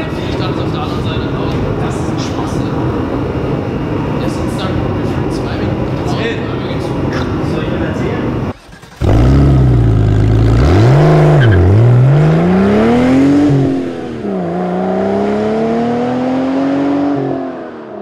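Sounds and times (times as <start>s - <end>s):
car engine revving: 8.2s - 18.0s.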